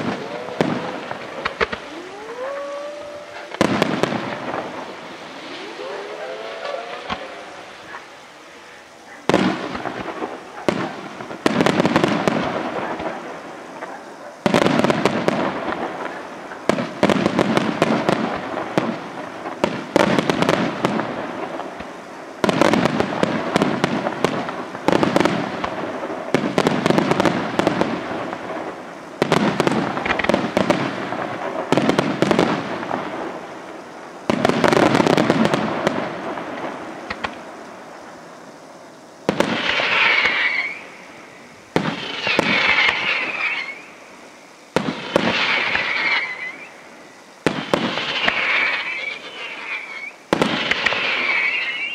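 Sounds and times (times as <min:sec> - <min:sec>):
fireworks shells bursting: 0:00.0 - 0:12.7, 0:39.2 - 0:44.1, 0:44.7 - 0:46.8, 0:47.4 - 0:51.9
fireworks crackle: 0:00.0 - 0:51.9.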